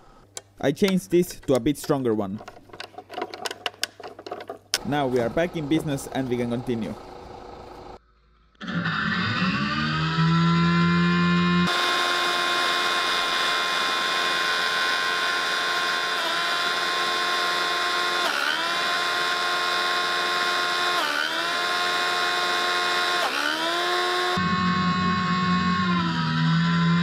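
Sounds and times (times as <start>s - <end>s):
electric motors whining: 4.8s - 8.0s, 8.6s - 27.0s.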